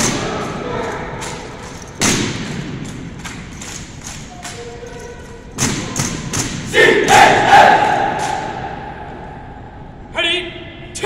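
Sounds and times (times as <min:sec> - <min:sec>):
wooden rifles clacking: 0:00.0 - 0:06.6
voices calling out together: 0:06.7 - 0:09.1.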